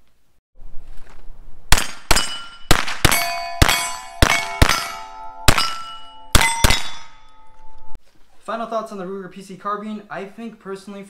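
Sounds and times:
sharp metallic clangs ringing: 2.0s - 8.0s.

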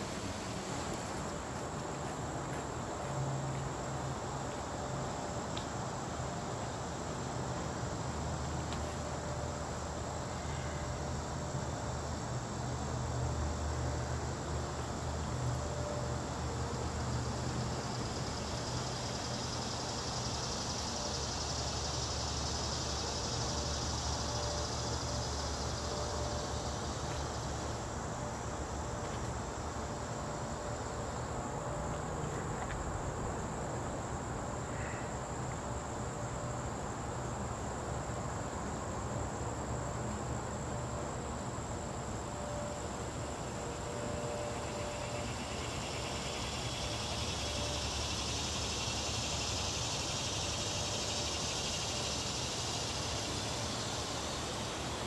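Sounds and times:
insect chorus buzzing: 0.0s - 55.0s.

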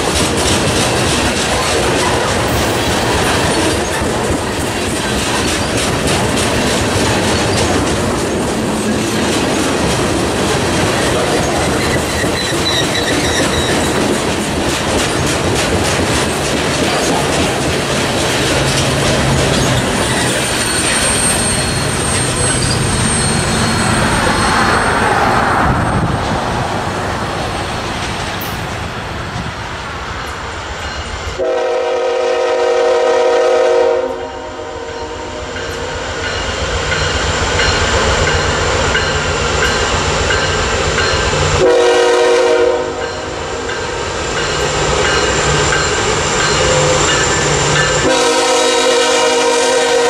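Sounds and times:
train cars clattering on rails: 0.0s - 26.4s, 35.5s - 50.0s
diesel engines rumbling: 0.0s - 29.6s
locomotive air horn: 31.4s - 35.5s, 41.6s - 43.0s, 48.0s - 50.0s.

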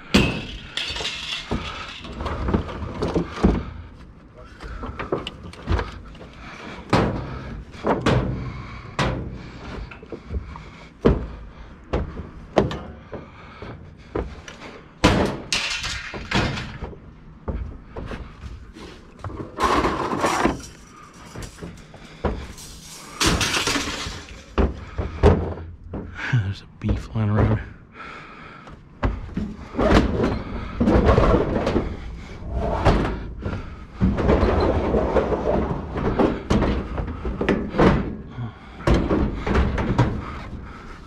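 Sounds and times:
metal clattering crashes: 0.0s - 3.3s, 15.0s - 16.8s, 22.4s - 25.3s
scrap metal clanking and banging: 0.0s - 10.8s, 15.0s - 17.0s, 18.2s - 25.6s, 29.1s - 41.0s.

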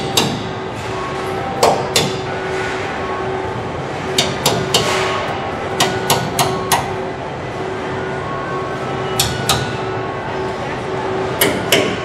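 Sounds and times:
hammer striking metal: 0.0s - 0.6s, 1.6s - 2.4s, 4.1s - 7.0s, 9.1s - 9.9s, 11.4s - 12.0s
steady factory hum: 0.0s - 12.0s.

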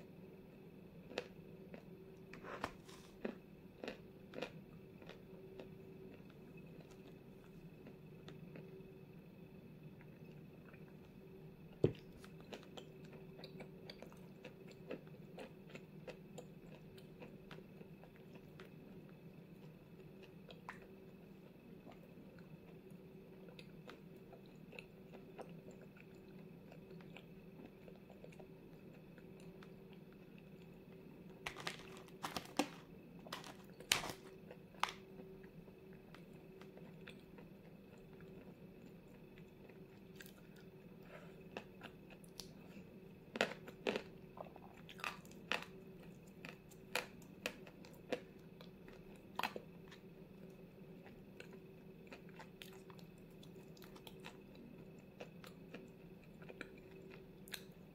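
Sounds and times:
steady low hum: 0.0s - 57.9s
chewing chalk crunches: 31.5s - 35.3s.

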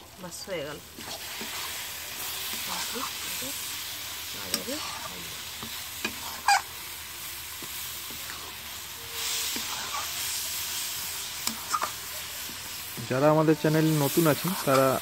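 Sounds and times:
food sizzling in a pan: 0.0s - 15.0s
spatula scraping pan: 1.0s - 3.7s, 4.3s - 6.7s, 7.5s - 12.8s.

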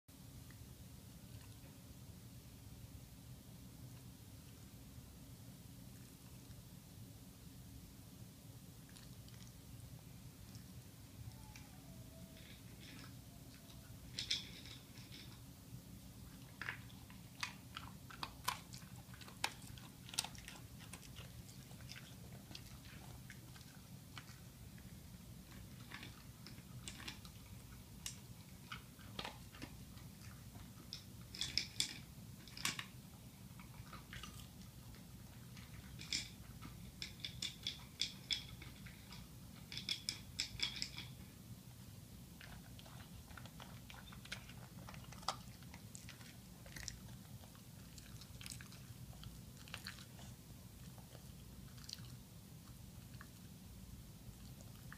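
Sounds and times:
dog crunching dry kibble: 12.4s - 53.6s.

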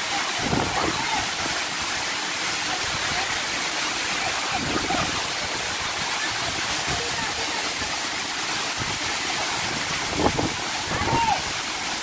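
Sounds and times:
stream and waterfall rushing: 0.0s - 12.0s.

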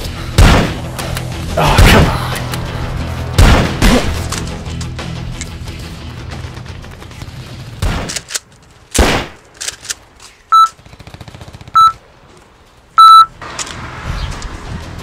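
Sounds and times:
electronic game beeps: 10.5s - 10.7s, 11.8s - 12.0s, 13.0s - 13.3s.

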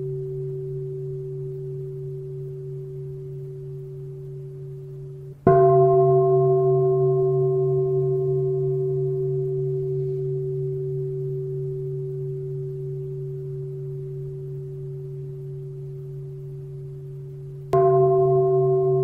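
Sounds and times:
low pulsing hum: 0.0s - 19.0s
meditation bowl bell ringing: 0.0s - 19.0s.

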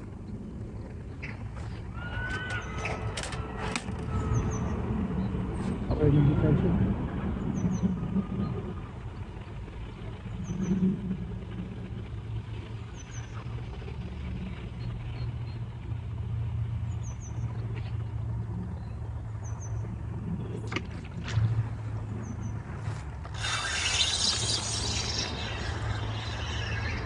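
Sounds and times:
engine or traffic hum: 0.0s - 27.0s.

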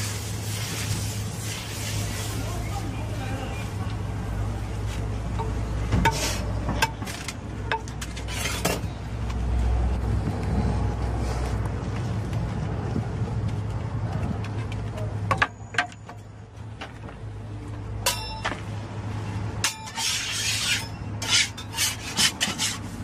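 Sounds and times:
spreader scraping on griddle: 6.0s - 7.3s, 8.0s - 9.0s, 19.6s - 23.0s.

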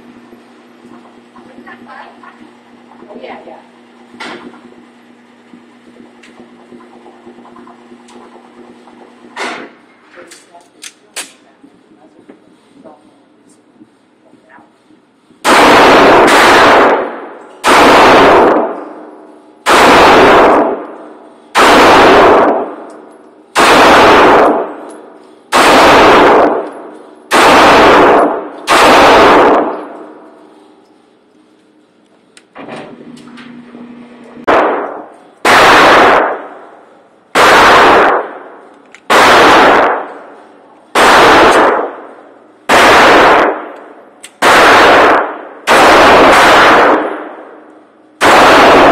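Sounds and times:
pistol shots echoing indoors: 15.4s - 30.4s, 34.4s - 48.9s.

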